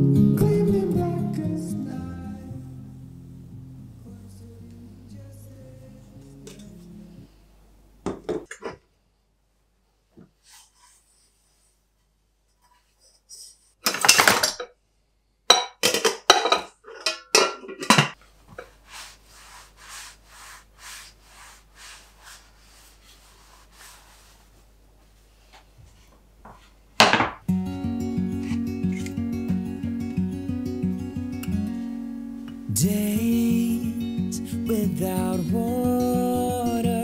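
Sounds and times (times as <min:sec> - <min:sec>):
kitchenware rattle: 0:13.9 - 0:14.7, 0:15.5 - 0:18.2
cloth rubbing a dish: 0:18.6 - 0:26.1.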